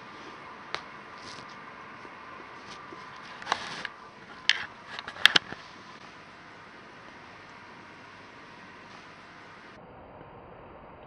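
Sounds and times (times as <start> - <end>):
brief rustle: 0.0 - 6.3
faint room hiss: 0.0 - 11.0
camera handling clicks: 3.4 - 5.6.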